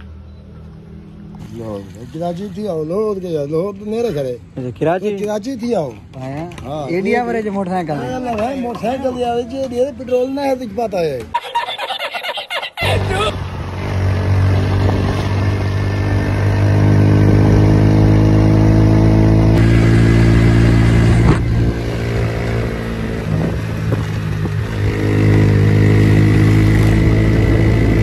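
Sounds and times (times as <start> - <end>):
motorcycle engine running hard: 12.9 - 28.0.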